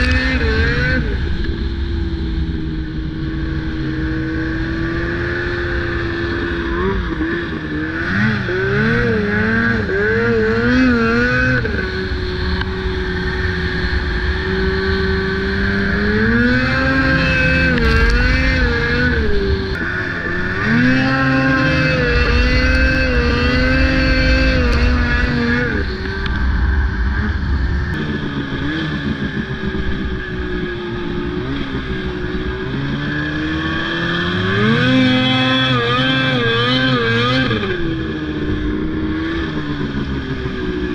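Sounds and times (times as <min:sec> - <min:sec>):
snowmobile engine revving: 0:00.0 - 0:01.5, 0:02.4 - 0:40.9.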